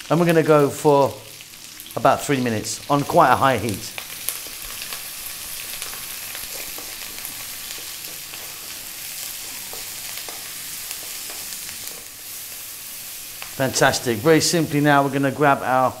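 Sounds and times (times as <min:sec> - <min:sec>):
food sizzling in oil: 0:00.0 - 0:16.0
wooden spatula scraping a pan: 0:04.3 - 0:12.5.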